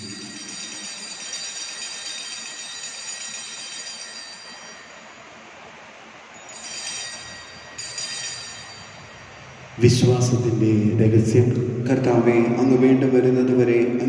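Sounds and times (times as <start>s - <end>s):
small bells ringing: 0.0s - 9.8s.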